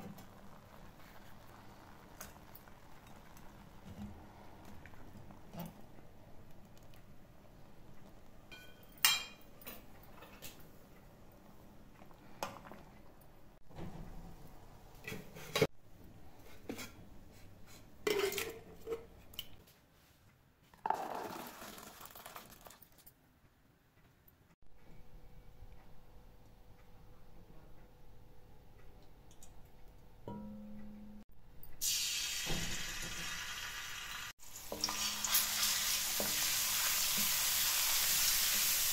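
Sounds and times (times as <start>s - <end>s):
metal pots clinking and knocking: 8.5s - 10.4s, 18.0s - 19.4s, 30.2s - 31.1s
water and peas pouring into tub: 20.9s - 23.0s.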